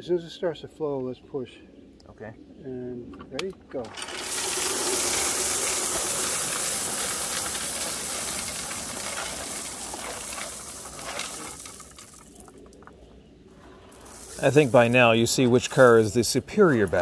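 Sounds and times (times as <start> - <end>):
gravel pouring onto track: 3.9 - 12.8, 13.6 - 17.0.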